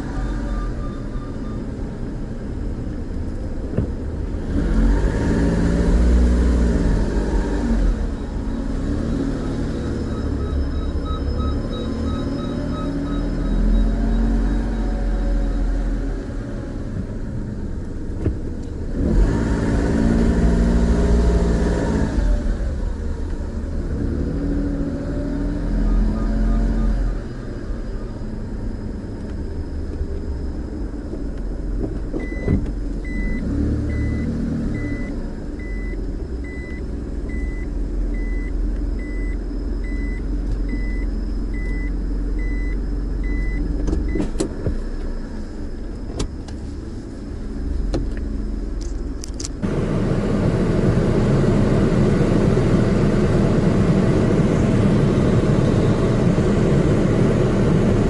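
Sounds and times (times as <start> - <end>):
short electronic beeps: 0.0 - 1.9, 9.4 - 15.7, 25.8 - 27.5, 32.2 - 44.2
car running with low rumble: 0.0 - 58.0.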